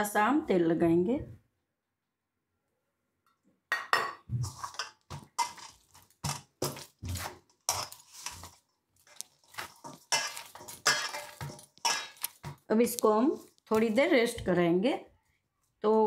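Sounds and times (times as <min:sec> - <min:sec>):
dough squelching: 0:04.4 - 0:14.6.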